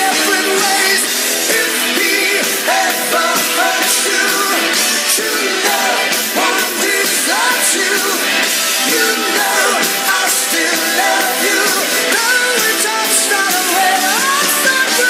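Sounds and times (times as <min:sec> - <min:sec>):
rock song with lead vocals: 0:00.0 - 0:15.0.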